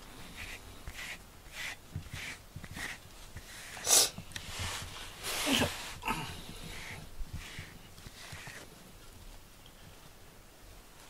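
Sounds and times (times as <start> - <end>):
cat sniffing: 0.2 - 8.6.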